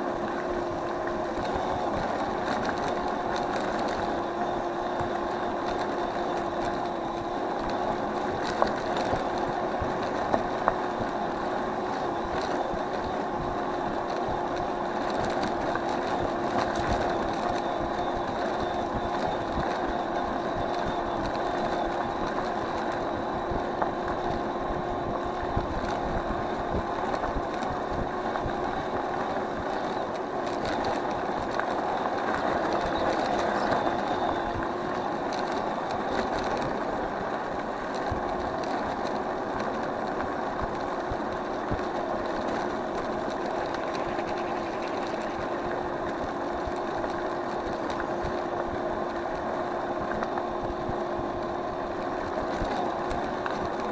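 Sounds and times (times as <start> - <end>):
electric scooter motor whine: 0.0 - 53.9
tyre and road rumble: 0.0 - 53.9
clicks and rattles from bumps: 25.3 - 53.9.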